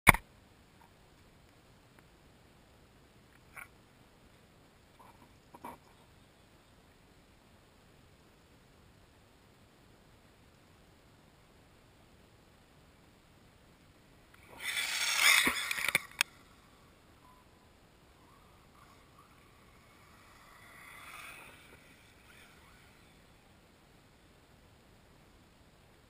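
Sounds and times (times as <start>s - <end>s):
rc car rushing past: 14.4s - 17.4s, 18.2s - 23.6s.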